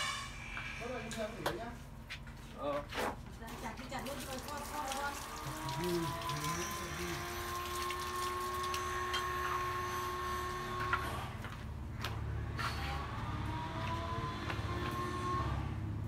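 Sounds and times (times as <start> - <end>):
water running from tap: 3.8 - 9.3
hands rinsing in water: 4.0 - 8.9.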